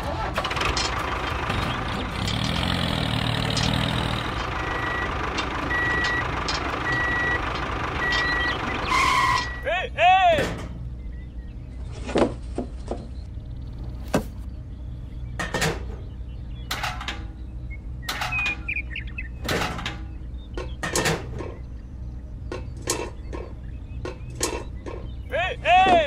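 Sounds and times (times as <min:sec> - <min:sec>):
low steady hum: 0:10.4 - 0:26.0.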